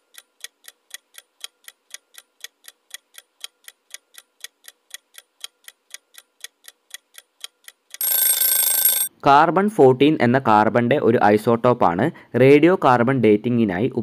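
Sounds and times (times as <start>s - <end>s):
clock ticking: 0.0s - 9.1s.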